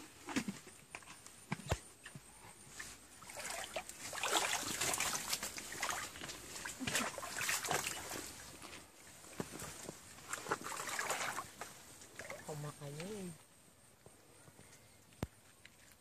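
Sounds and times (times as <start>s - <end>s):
rustling undergrowth: 2.6s - 12.6s
water splashing in a stream: 2.7s - 8.7s, 10.0s - 13.2s.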